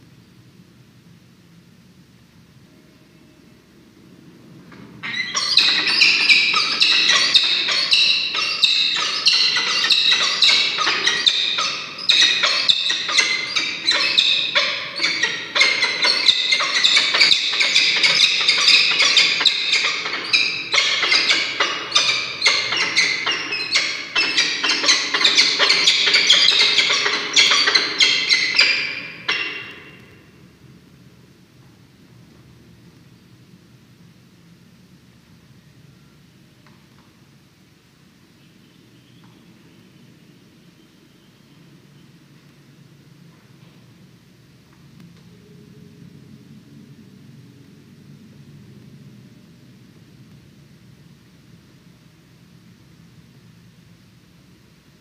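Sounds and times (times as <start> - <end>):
falcon harsh calls: 5.0 - 30.1.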